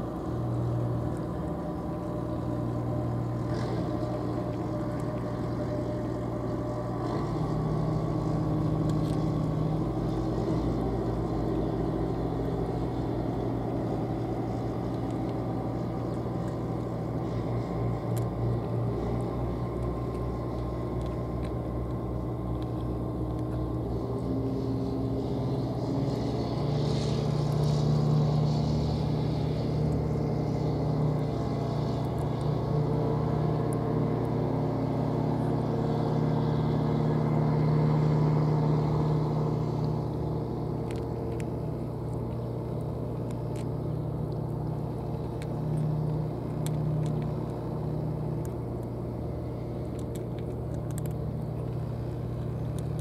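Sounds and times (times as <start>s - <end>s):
engine droning: 0.0s - 53.0s.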